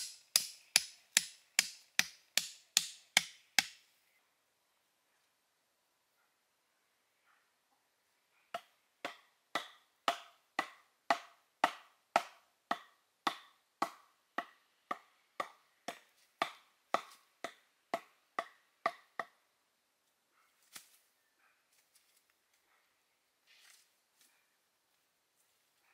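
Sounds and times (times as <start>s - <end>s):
bamboo knocking: 0.0s - 3.8s, 8.6s - 19.4s.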